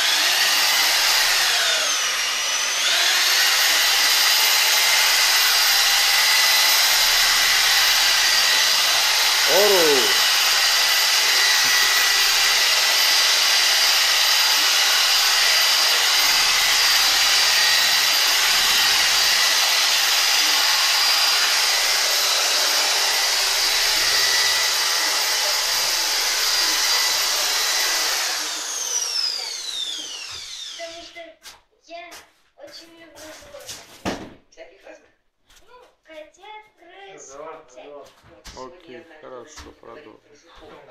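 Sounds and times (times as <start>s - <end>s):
electric paddle mixer motor: 0.0s - 30.8s.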